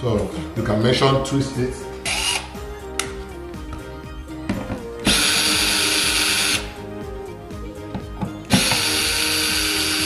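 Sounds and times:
cordless drill running: 2.0s - 2.5s, 5.0s - 6.8s, 8.5s - 10.0s.

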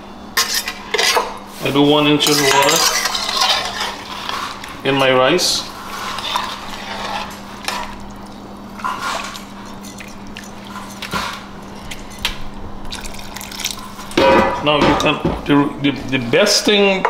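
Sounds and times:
spoon stirring rice in water: 2.2s - 4.8s, 5.8s - 14.2s.

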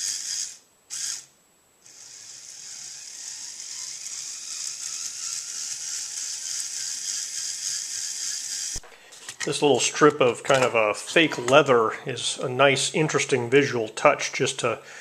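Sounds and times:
high whir of small motors: 0.0s - 8.8s.

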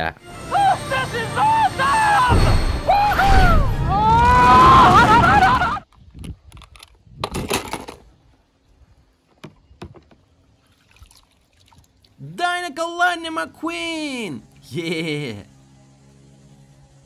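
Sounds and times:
small clicks: 5.9s - 7.0s.

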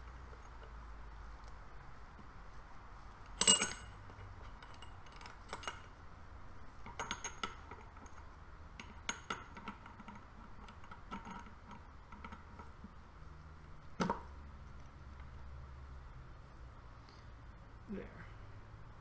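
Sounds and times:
metal gear parts clinking: 3.4s - 3.9s.

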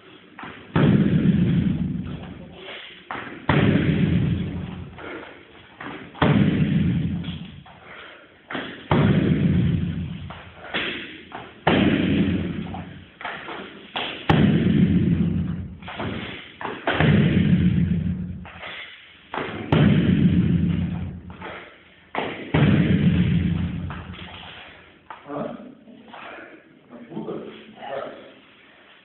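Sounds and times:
heavy thuds on padded shield: 0.7s - 2.2s, 3.1s - 5.1s, 5.8s - 7.6s, 8.6s - 13.0s, 14.1s - 18.5s, 19.4s - 24.4s.

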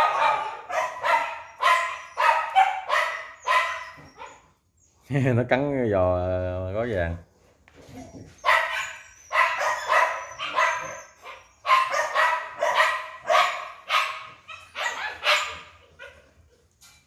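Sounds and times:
dog barking: 0.0s - 4.4s, 8.4s - 16.2s.

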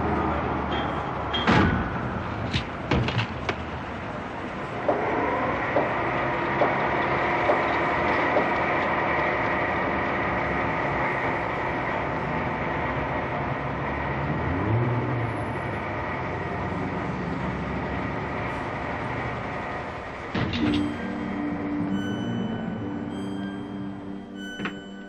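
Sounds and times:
crane hoist whining hum: 4.0s - 25.0s
low rising and falling tone: 20.8s - 25.0s.

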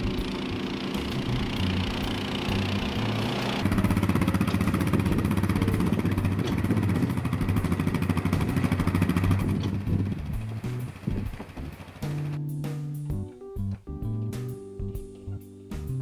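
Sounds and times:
mower engine running: 0.0s - 12.4s.

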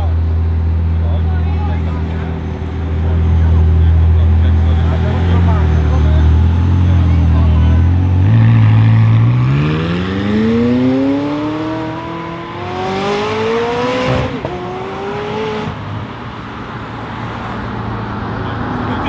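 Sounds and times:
sports car accelerating: 1.8s - 19.0s.

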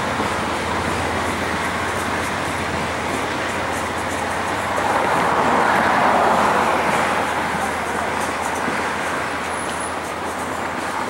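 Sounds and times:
train wheels on track: 0.0s - 11.0s.

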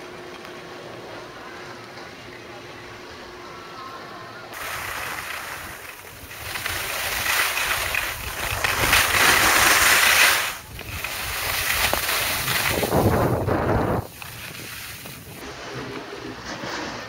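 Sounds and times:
skis scraping over snow: 4.6s - 17.0s
wind on microphone: 10.6s - 17.0s.

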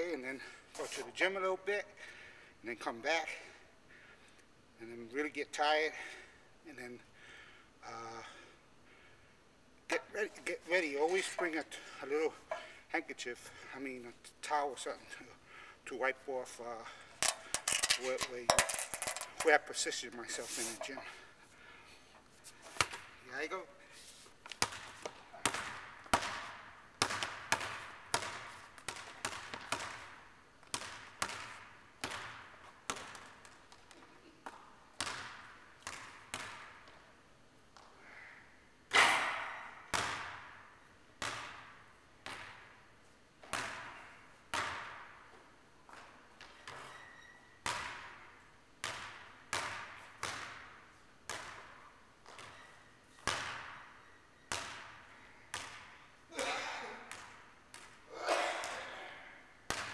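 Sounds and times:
basketball bouncing in gym: 10.4s - 12.8s, 16.8s - 19.5s, 22.7s - 23.2s, 24.5s - 37.2s, 37.8s - 38.2s, 38.9s - 59.9s.

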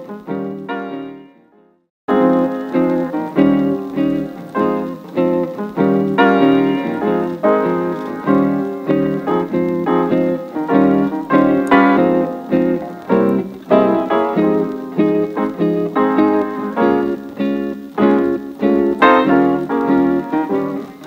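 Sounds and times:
piano background music: 0.0s - 21.0s.

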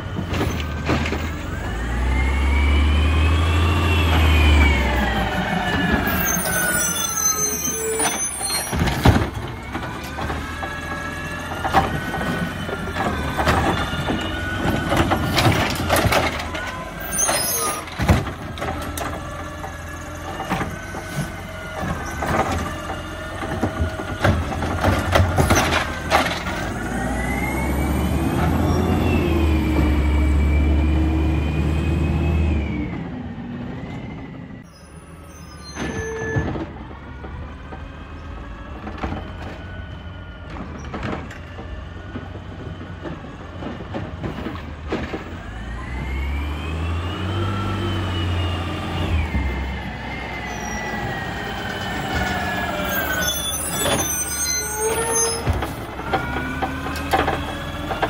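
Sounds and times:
garbage truck diesel engine revving: 0.2s - 6.8s, 8.9s - 34.4s, 42.1s - 58.0s
carts clanking against hopper: 8.0s - 26.8s, 51.0s - 58.0s
hydraulic arm whining: 44.4s - 58.0s.

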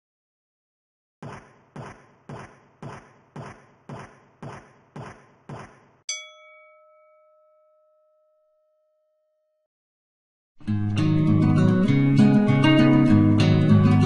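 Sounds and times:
bright ringing ping: 6.1s - 9.2s.

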